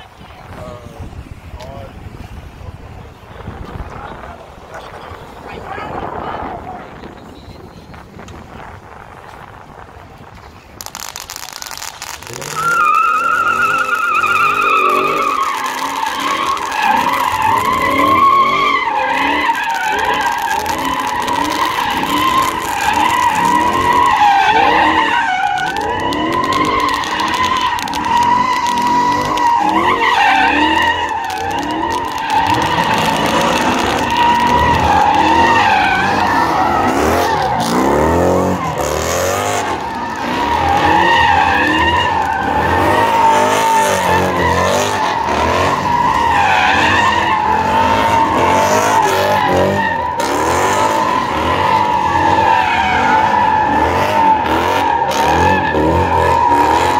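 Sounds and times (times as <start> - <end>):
car engines revving: 0.0 - 56.9
car tyres squealing: 0.0 - 56.9.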